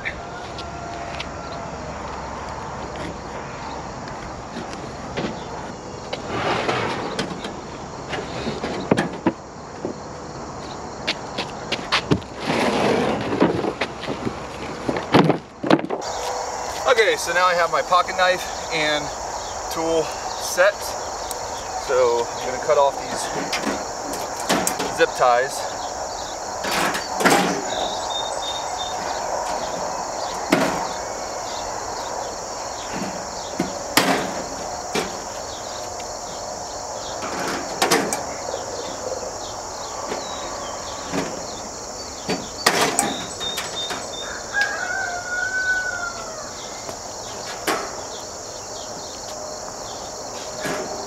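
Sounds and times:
rooster crowing: 0.0 - 2.7, 16.0 - 17.8, 38.2 - 42.0, 43.2 - 47.2
crickets chirping: 0.0 - 51.0.

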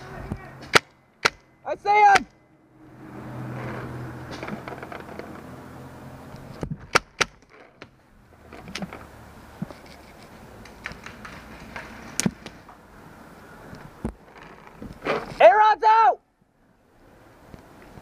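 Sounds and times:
paintball gun cracks: 6.9 - 7.6.

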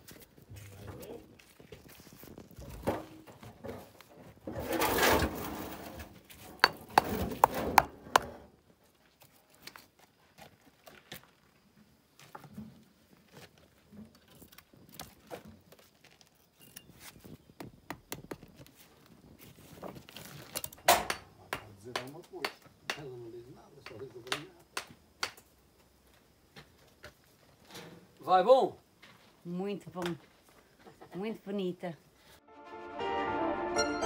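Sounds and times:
stones and tools knocking: 6.4 - 8.4.

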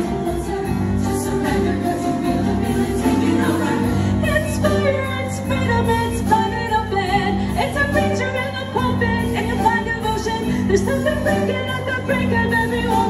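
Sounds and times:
choir singing: 0.0 - 6.5
upbeat accompaniment with bass: 0.0 - 13.0.

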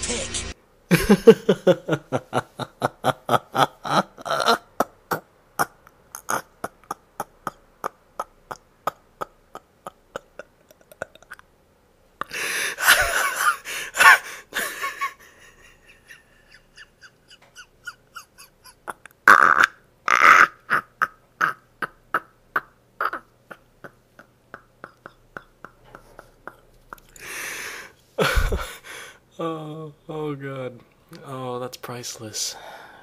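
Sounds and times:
person laughing hard: 0.9 - 11.4, 12.2 - 19.2, 20.1 - 27.2, 28.2 - 28.9.

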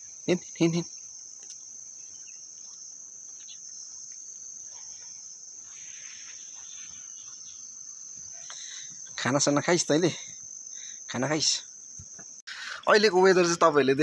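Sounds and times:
insect chorus drone: 0.0 - 14.0
faint rustle: 1.1 - 9.3.

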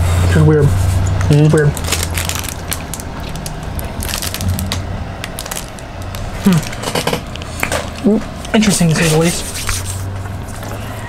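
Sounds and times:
plastic wrapper crinkling: 1.2 - 8.1.

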